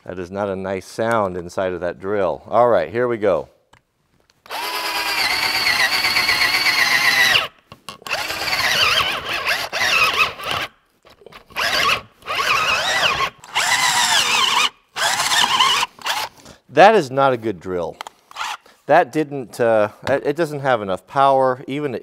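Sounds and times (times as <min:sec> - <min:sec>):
cordless drill whining into wood: 0:04.4 - 0:10.7, 0:11.5 - 0:16.3, 0:18.3 - 0:18.7.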